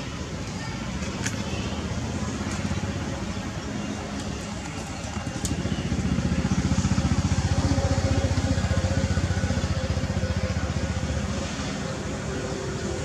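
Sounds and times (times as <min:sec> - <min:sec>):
small engine idling: 0:03.8 - 0:13.0.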